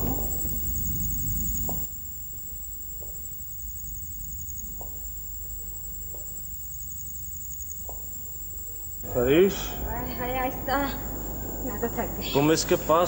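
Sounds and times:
crickets chirping: 0.0s - 13.0s
faint low hum: 9.0s - 13.0s.

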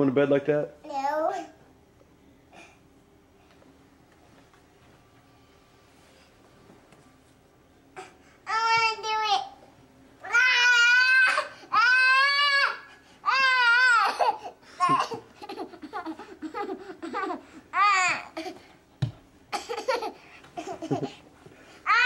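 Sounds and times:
toddler crying: 10.2s - 18.6s.

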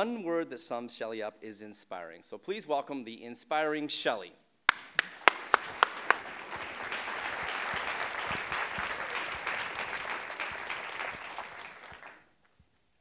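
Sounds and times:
audience applauding: 4.7s - 12.3s.

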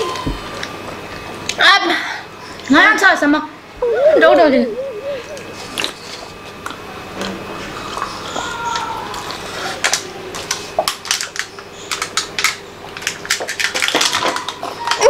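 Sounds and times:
plastic cups crinkling and clicking: 7.9s - 15.0s.

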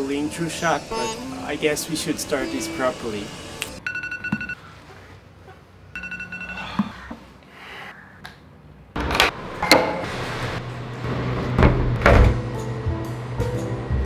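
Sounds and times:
smartphone alarm beeping: 3.8s - 4.6s, 6.0s - 6.9s.

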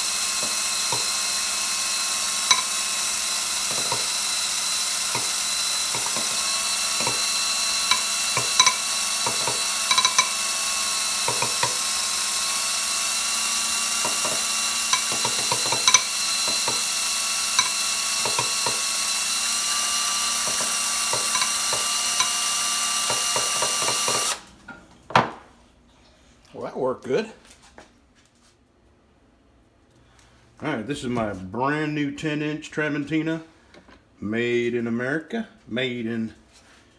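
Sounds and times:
cordless drill running: 0.0s - 24.5s.

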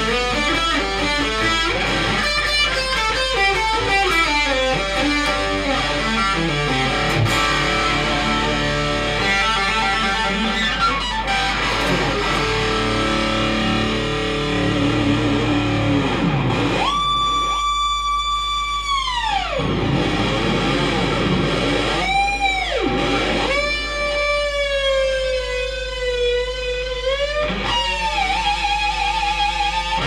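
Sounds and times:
electric guitar solo: 0.0s - 30.0s.

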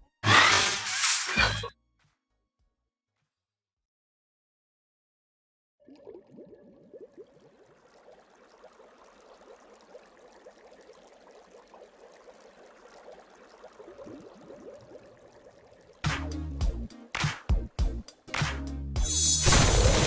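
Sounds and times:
underwater bubbling: 5.8s - 16.1s.

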